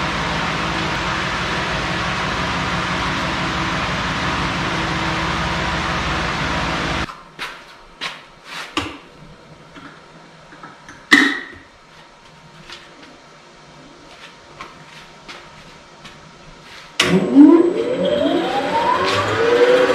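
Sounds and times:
machine running: 0.0 - 7.1, 17.0 - 19.9.

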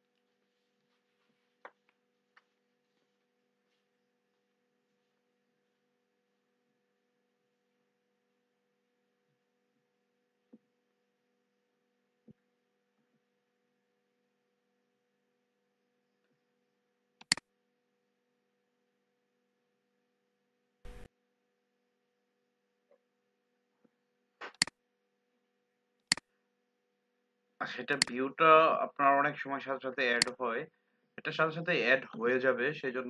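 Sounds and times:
computer mouse click: 17.2 - 17.4, 20.9 - 21.1, 24.4 - 24.8
soft clicks: 17.2 - 17.4.

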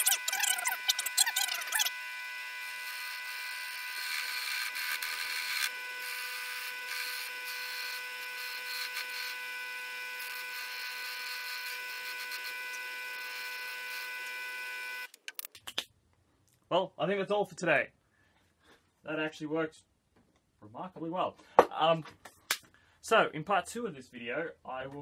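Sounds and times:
electric motor whine: 0.0 - 15.2
turning tool cutting wood: 0.0 - 15.3.

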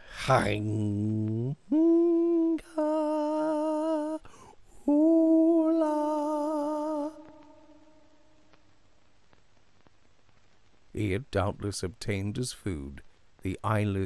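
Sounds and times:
voice holding long notes: 0.0 - 8.2.

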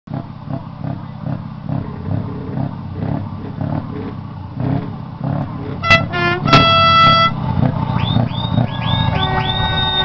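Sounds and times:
diesel truck engine idling: 0.2 - 10.0.

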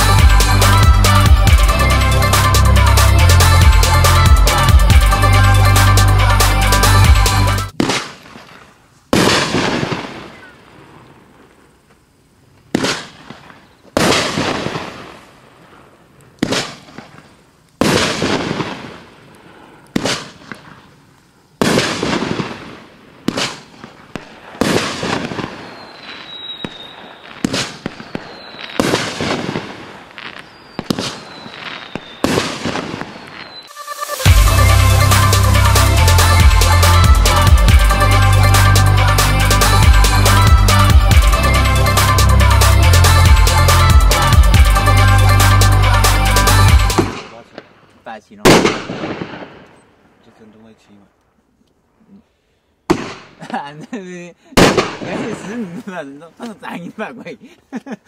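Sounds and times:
firework aerial bursts: 0.0 - 11.8, 12.7 - 49.7, 52.9 - 57.8
falling firework whistles: 7.7 - 11.4, 21.6 - 35.5.

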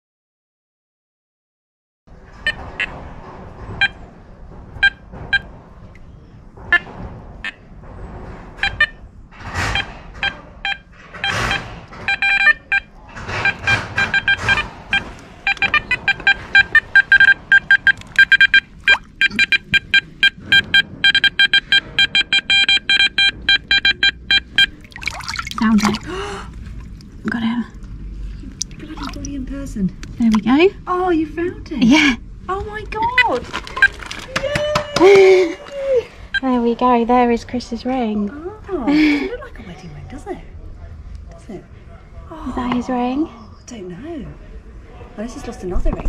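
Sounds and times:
metal detector beeps: 10.7 - 24.8.

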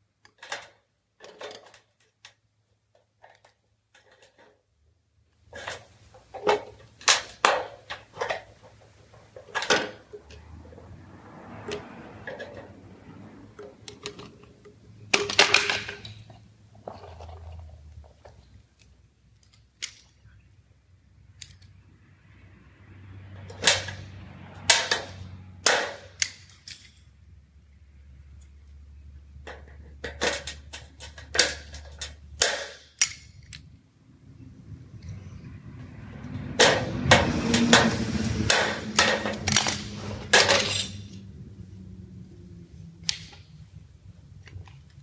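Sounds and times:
tools clicking and knocking: 0.2 - 4.7, 5.4 - 10.7, 13.4 - 20.3, 21.3 - 21.8, 23.4 - 27.2, 29.4 - 33.8, 36.2 - 41.2.

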